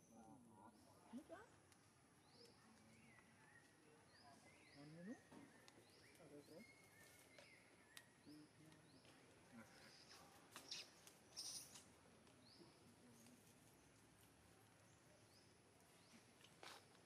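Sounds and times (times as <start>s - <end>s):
faint high bird chirps: 2.2s - 13.4s.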